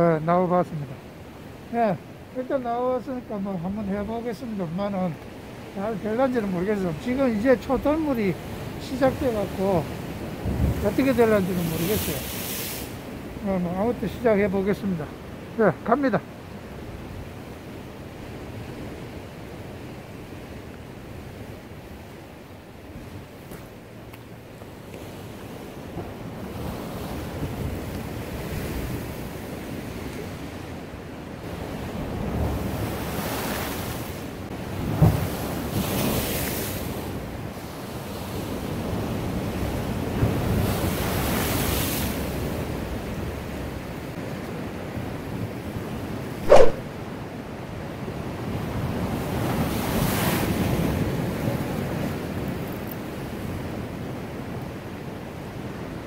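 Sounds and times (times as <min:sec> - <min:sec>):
surf washing over rocks: 0:00.0 - 0:17.4, 0:18.0 - 0:54.4
sharp thump: 0:46.4 - 0:46.8
brief sharp sound: 0:46.4 - 0:46.9
wind on microphone: 0:46.4 - 0:46.9.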